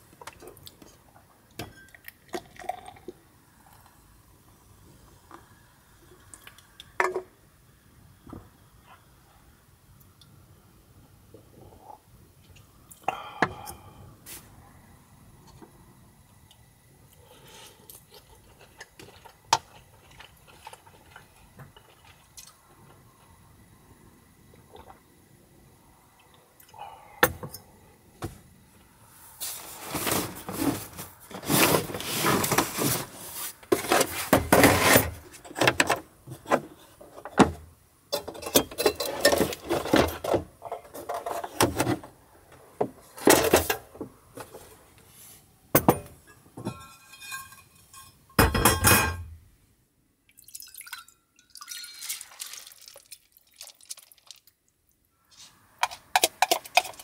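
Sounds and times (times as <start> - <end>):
rummaging in plastic cooler box: 29.4 - 37.5, 38.4 - 42.1
liquid dripping: 50.3 - 54.6.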